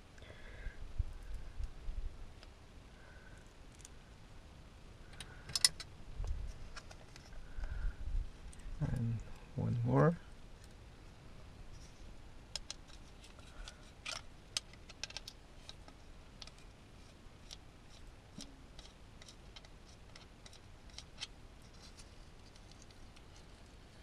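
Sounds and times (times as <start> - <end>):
small metallic clicks of hex driver: 5.1 - 5.9.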